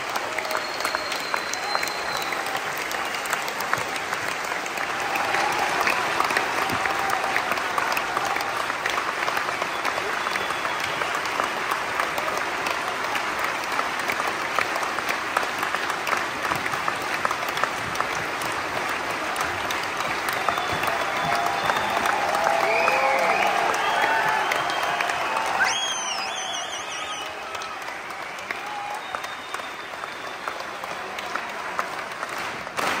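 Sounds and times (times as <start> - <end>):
audience applauding: 0.0 - 33.0.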